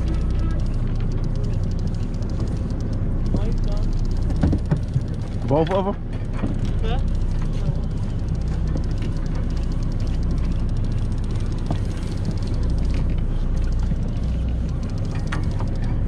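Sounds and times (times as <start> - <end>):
boat engine low rumble: 0.0 - 16.0
faint fast ticking: 0.0 - 16.0.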